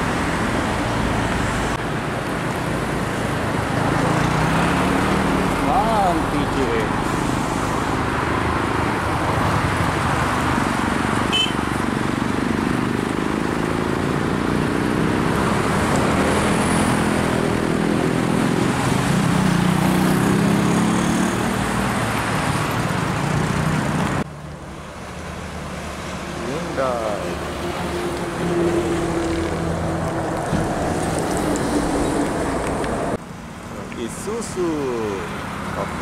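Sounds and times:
expressway traffic: 0:00.0 - 0:36.0
truck diesel engine passing: 0:11.8 - 0:36.0.

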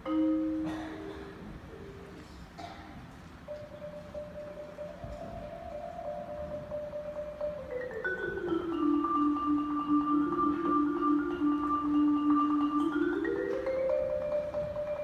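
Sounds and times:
marimba rolled notes: 0:00.0 - 0:02.4, 0:03.2 - 0:15.0.

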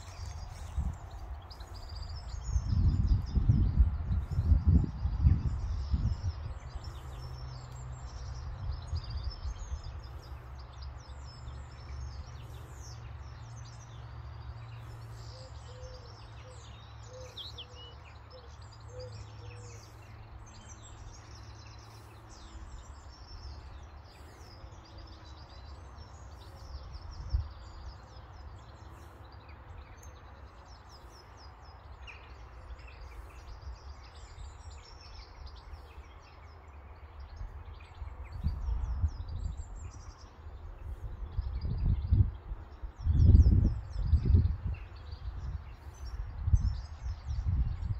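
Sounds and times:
low rumble on microphone: 0:00.0 - 0:16.9, 0:18.2 - 0:47.9
songbirds chirping and singing: 0:00.0 - 0:47.9.

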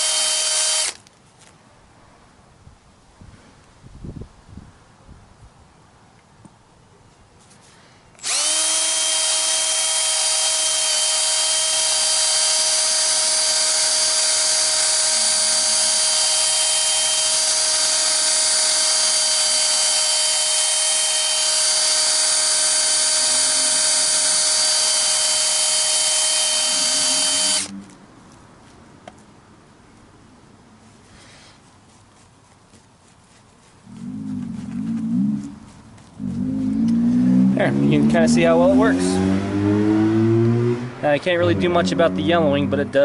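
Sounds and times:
drill whining with buffing pad: 0:00.0 - 0:01.0, 0:08.2 - 0:27.8.

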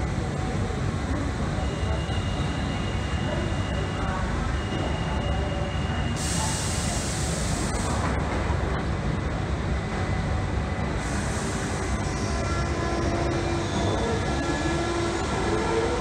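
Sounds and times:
train low rumble: 0:00.0 - 0:16.0.

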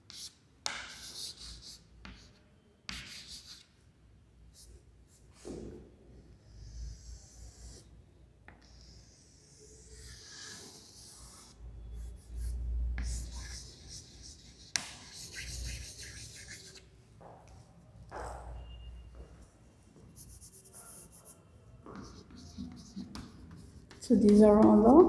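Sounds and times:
chalk scratching on blackboard: 0:00.0 - 0:03.7, 0:06.4 - 0:07.9, 0:08.6 - 0:16.9, 0:20.1 - 0:24.6.

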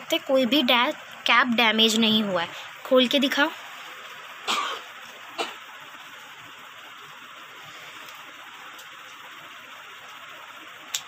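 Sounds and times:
steady hiss: 0:00.0 - 0:11.0.

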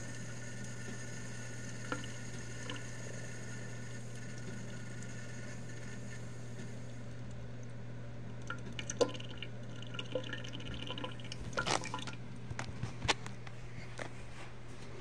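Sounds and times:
faucet water trickling: 0:00.0 - 0:07.7, 0:08.3 - 0:12.3.

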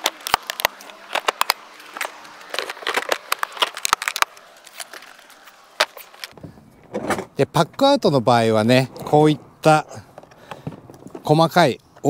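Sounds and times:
plastic tool boxes clicking and knocking: 0:05.8 - 0:12.0.

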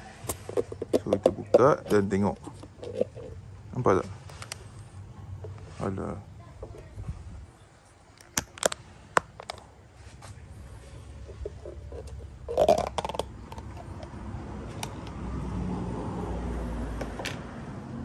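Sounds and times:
plastic cups clicking and tapping: 0:00.0 - 0:04.6, 0:08.2 - 0:09.8, 0:10.8 - 0:15.2.

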